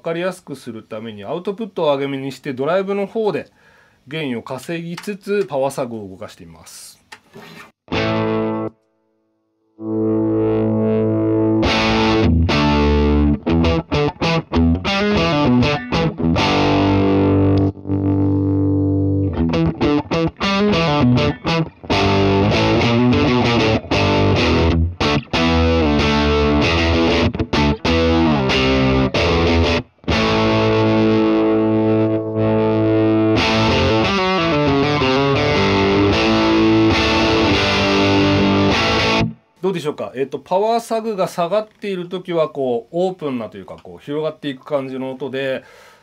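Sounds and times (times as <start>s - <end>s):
distorted electric guitar: 7.9s - 8.8s, 9.8s - 39.5s.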